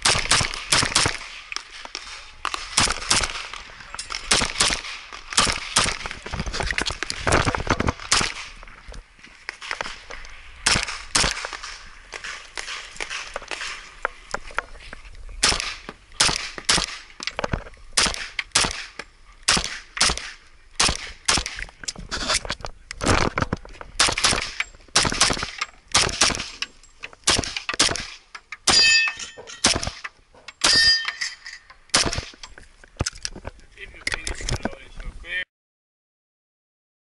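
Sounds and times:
pistol shots: 0.0s - 6.2s, 8.0s - 8.6s, 10.6s - 13.8s, 15.4s - 17.1s, 18.0s - 21.6s, 24.0s - 26.6s, 27.2s - 31.0s, 31.9s - 32.3s
metallic ringing: 28.7s - 29.7s, 30.6s - 31.7s.

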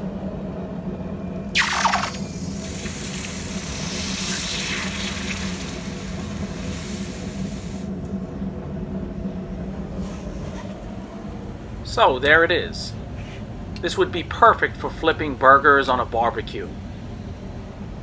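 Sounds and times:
steady low hum: 0.0s - 18.0s
water bubbling: 1.6s - 6.2s
steam hissing: 1.6s - 8.0s.

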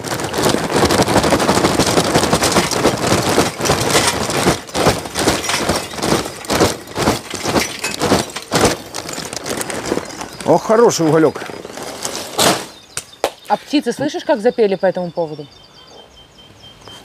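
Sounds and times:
charcoal clattering into metal grill: 1.7s - 10.2s, 11.0s - 12.8s.

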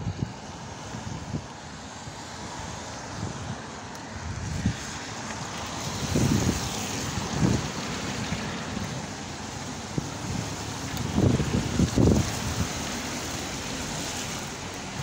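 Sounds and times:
wind buffeting microphone: 0.0s - 15.0s
tyres rolling on wet tarmac: 0.1s - 15.0s.

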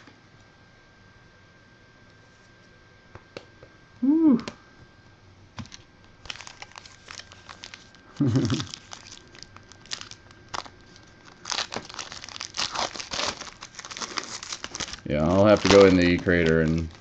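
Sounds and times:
card pack wrappers crinkling and tearing: 5.6s - 17.0s.

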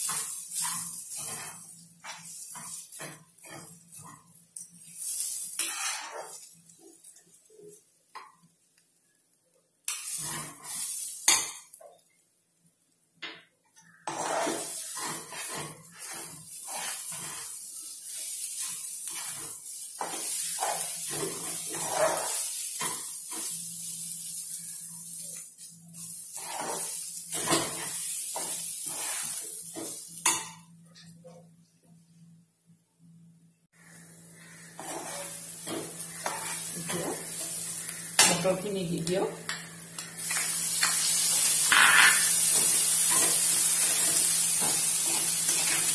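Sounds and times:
spatula stirring in a wok: 0.0s - 8.4s, 9.9s - 12.0s, 13.8s - 30.6s, 33.8s - 45.9s.

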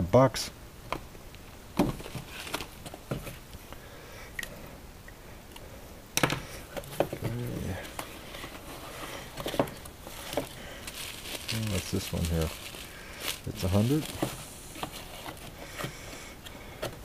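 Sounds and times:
cardboard boxes being handled: 1.8s - 3.5s, 6.7s - 17.0s.

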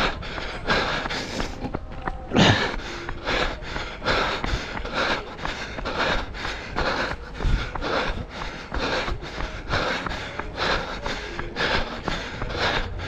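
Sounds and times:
runner breathing hard: 0.0s - 13.0s.

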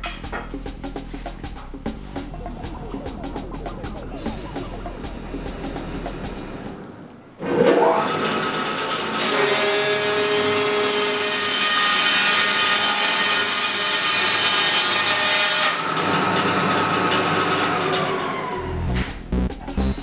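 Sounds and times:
machine running tone: 1.9s - 6.9s.

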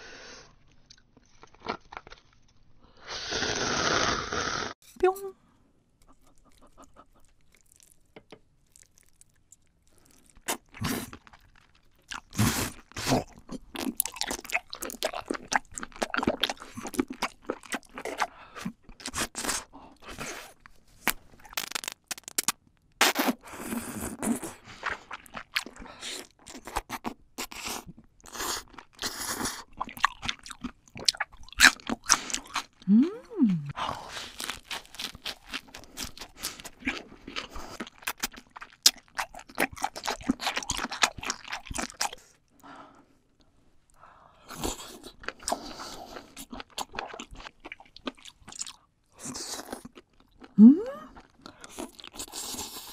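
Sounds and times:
person chewing wetly: 6.0s - 20.6s, 23.8s - 32.9s, 33.7s - 42.3s, 44.5s - 52.9s.

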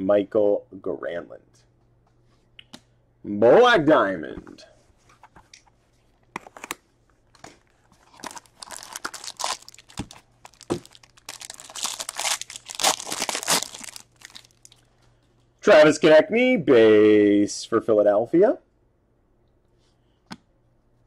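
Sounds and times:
wrapper crinkling and tearing: 8.0s - 14.9s.

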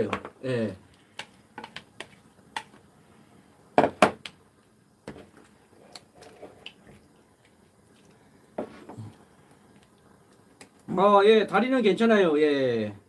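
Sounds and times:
wooden spoon stirring: 5.0s - 10.9s.

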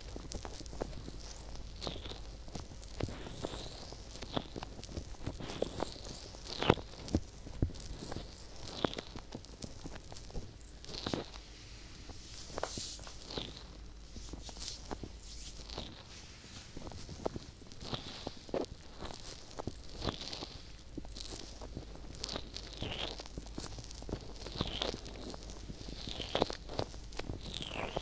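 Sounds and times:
small crackles and clicks: 0.0s - 28.0s
fingertips rubbing microphone: 4.4s - 20.5s.

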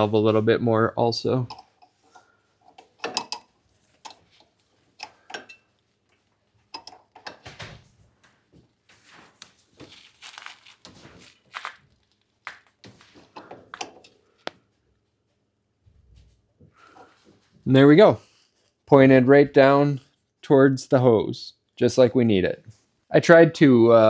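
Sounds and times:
wrench clinking and scraping on metal: 1.4s - 5.8s, 6.6s - 7.4s, 13.3s - 14.2s.

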